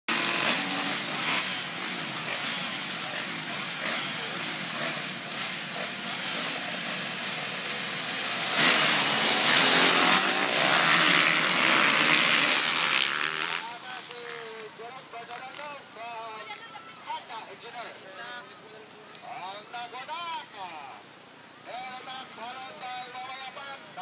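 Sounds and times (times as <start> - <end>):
dirt bikes revving: 0.0 - 16.0
dirt bikes launching full throttle: 0.1 - 14.5.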